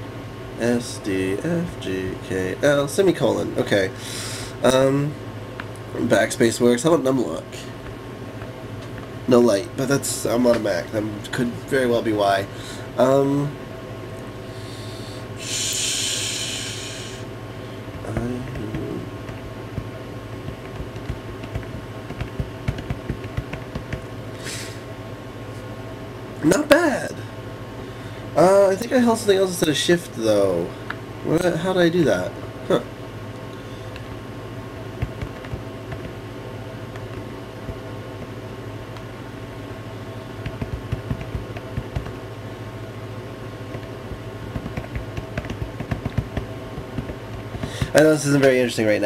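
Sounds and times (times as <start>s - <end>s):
steady low hum: 0.0s - 49.0s
typing on rubber keyboard: 20.6s - 24.0s.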